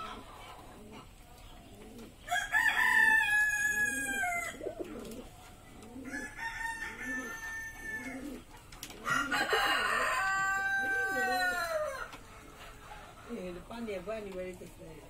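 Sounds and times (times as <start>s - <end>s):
pigeons cooing: 0.0s - 13.9s
rooster crowing: 2.3s - 4.7s, 6.0s - 8.4s, 9.0s - 12.2s.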